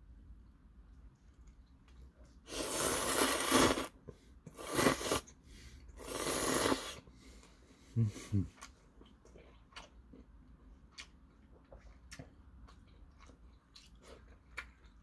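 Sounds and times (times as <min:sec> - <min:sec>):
loud slurping of noodles: 0:02.5 - 0:05.3, 0:06.0 - 0:07.0.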